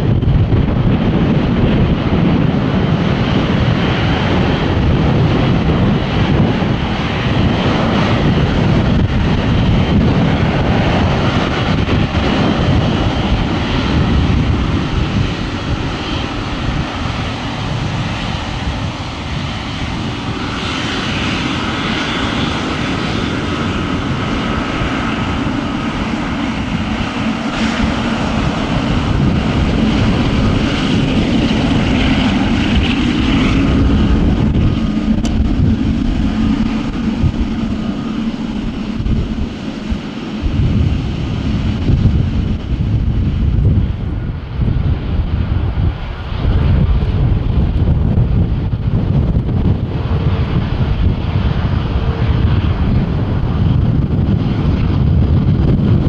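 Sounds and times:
jet engines rumbling: 0.0s - 56.0s.

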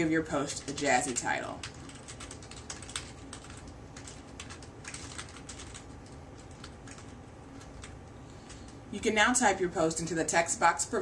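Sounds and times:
computer keyboard typing: 0.4s - 8.8s.

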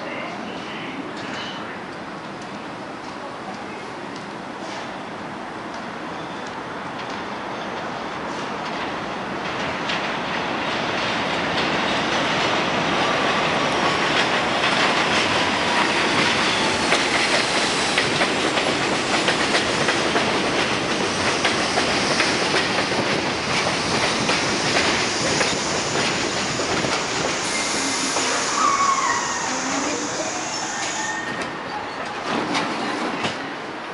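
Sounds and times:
subway train wheel rumble: 0.0s - 33.9s
clickety-clack of wheels: 8.6s - 12.6s, 13.9s - 27.4s.

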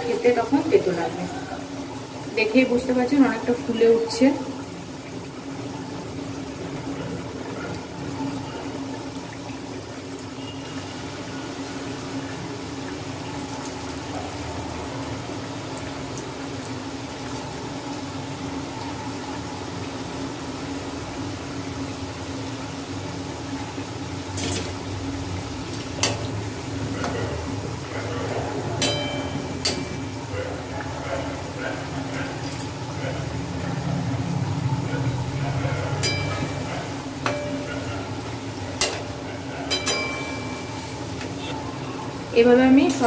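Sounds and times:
oil sizzling and bubbling: 0.0s - 43.0s
metal spoon clinking on pan: 28.8s - 30.1s, 36.0s - 37.8s, 39.7s - 40.9s.

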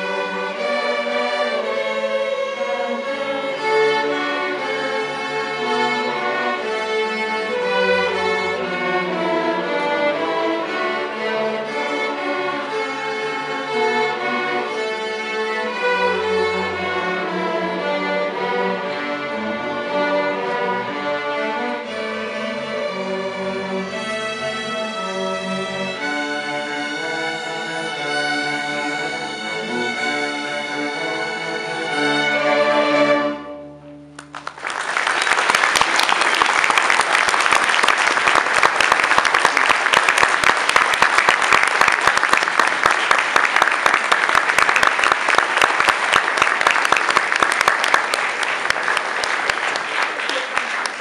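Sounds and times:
string orchestra playing: 0.0s - 51.0s
audience applause: 34.2s - 51.0s.

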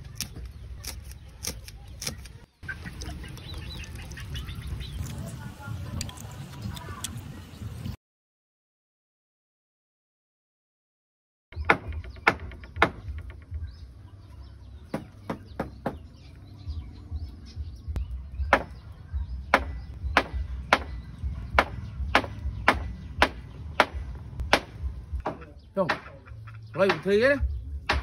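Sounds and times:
hammer striking wooden beam: 11.6s - 13.5s, 18.5s - 18.8s, 19.5s - 21.0s, 21.6s - 26.2s, 26.8s - 27.2s.

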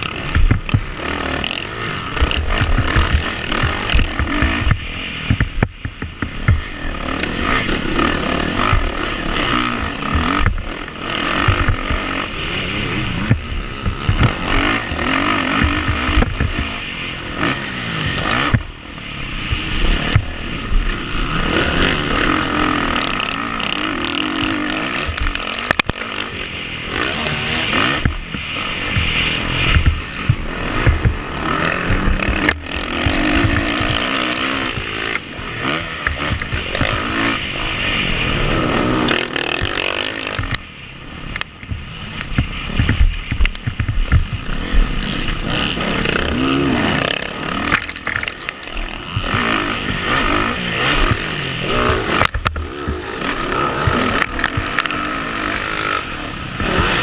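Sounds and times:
dirt bike engine revving: 0.0s - 57.0s
helmet camera clatter: 47.7s - 50.0s.

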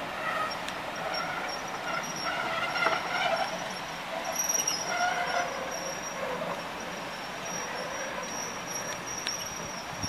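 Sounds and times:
train coaches rolling on rails: 0.0s - 10.0s
wheel squeals: 0.0s - 10.0s.

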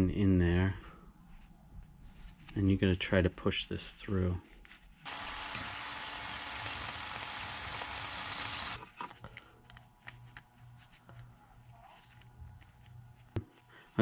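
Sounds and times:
cordless drill drilling plastic: 5.1s - 8.8s.

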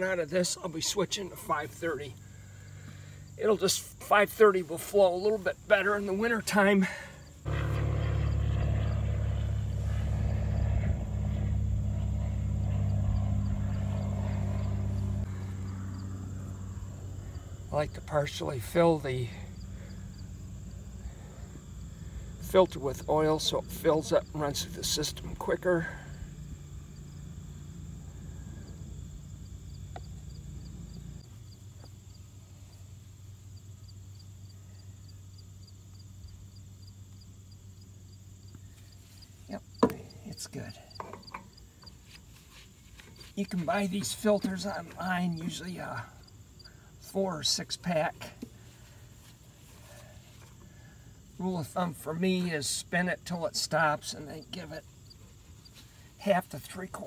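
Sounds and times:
insect chirping: 0.0s - 57.0s
low steady hum: 0.0s - 57.0s
machine droning: 6.8s - 33.2s.

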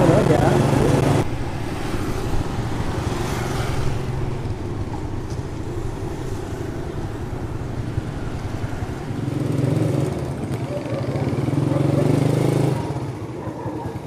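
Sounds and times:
road noise: 0.0s - 14.0s.

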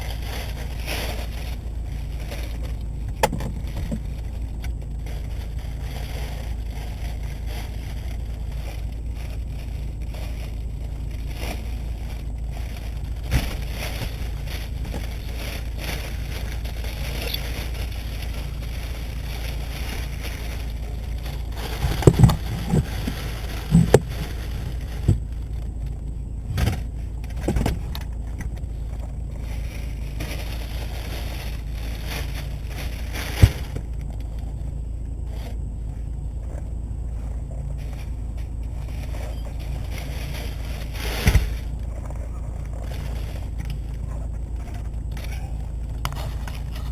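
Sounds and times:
steady low rumble: 0.0s - 46.9s
walker knocking and clattering: 21.6s - 24.3s.

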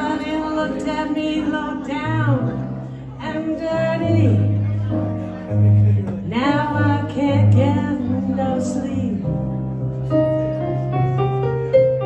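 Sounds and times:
woman singing: 0.0s - 2.6s, 3.2s - 4.6s, 6.3s - 9.4s
electric keyboard chords: 0.0s - 12.0s.

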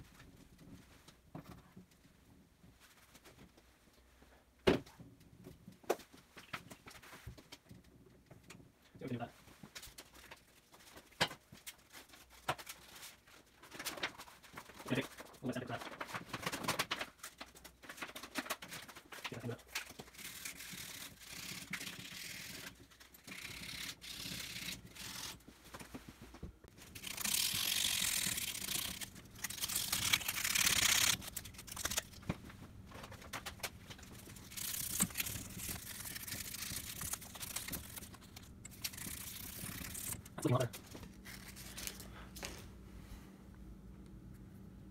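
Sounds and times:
brisk scrubbing: 26.0s - 32.5s, 33.7s - 41.9s.

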